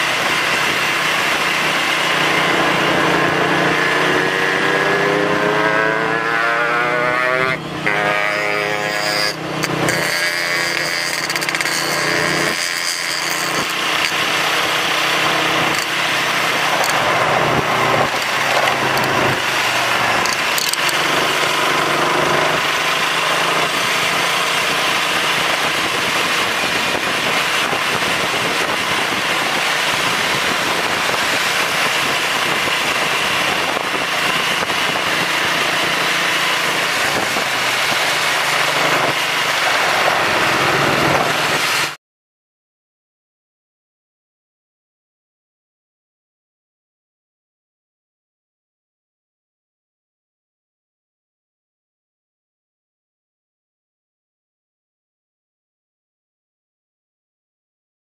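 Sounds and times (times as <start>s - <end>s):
motorcycle engine running: 0.0s - 8.0s, 11.1s - 41.8s
wind and road noise: 0.0s - 42.0s.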